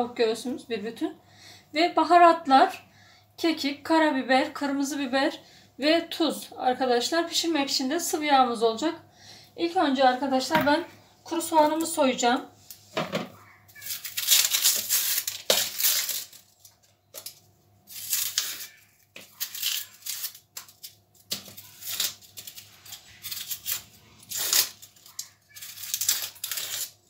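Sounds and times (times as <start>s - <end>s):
onion skin crackling and tearing: 13.7s - 27.0s.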